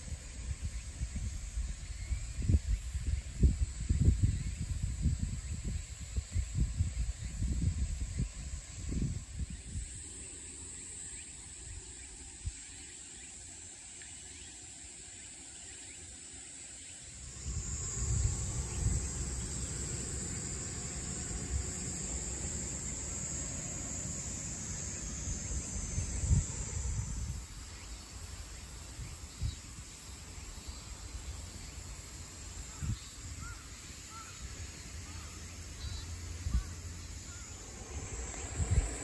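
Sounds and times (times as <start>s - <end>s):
wind rumbling on microphone: 0.0s - 10.0s, 17.2s - 31.8s, 32.5s - 39.0s
high insect drone: 0.0s - 39.0s.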